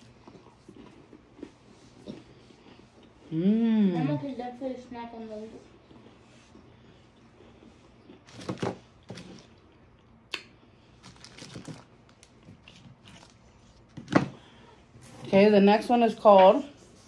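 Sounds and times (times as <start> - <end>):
snack wrappers crinkling: 8.0 - 14.1.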